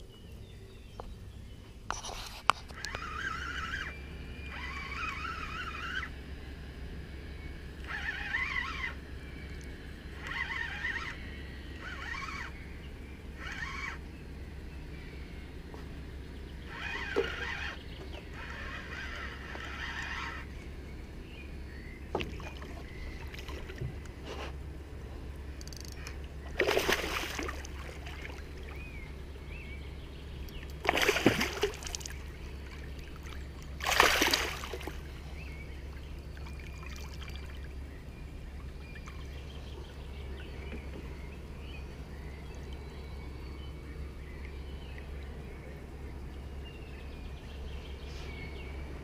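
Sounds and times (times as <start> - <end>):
fish splashing at water surface: 26.6 - 28.5, 30.8 - 32.3, 33.2 - 35.0.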